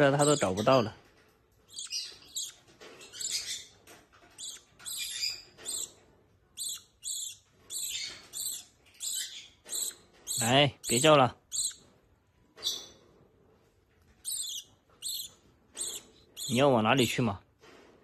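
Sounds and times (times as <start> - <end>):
bird chick begging chirps: 1.7 - 3.7, 4.4 - 5.9, 6.6 - 11.8, 14.2 - 16.6.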